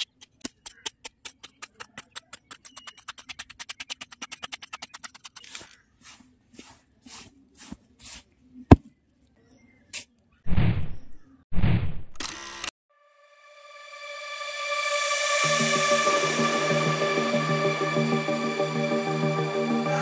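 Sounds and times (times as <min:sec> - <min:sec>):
hands scraping damp soil: 0:00.4 - 0:08.9.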